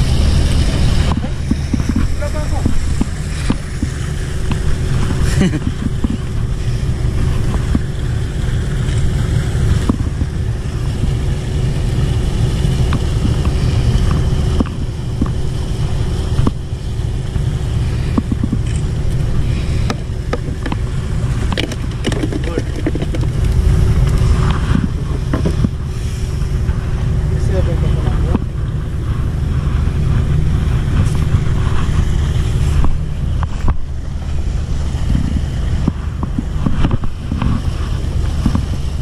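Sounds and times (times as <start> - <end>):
heavy machinery engine rumble: 0.0 - 39.0
fishing gear clicks and knocks: 21.4 - 24.2.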